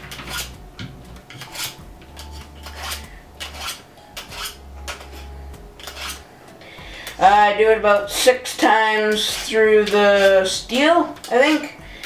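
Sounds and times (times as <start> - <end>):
knife scraping through sharpener: 0.0 - 0.6, 1.3 - 6.3, 8.5 - 10.5.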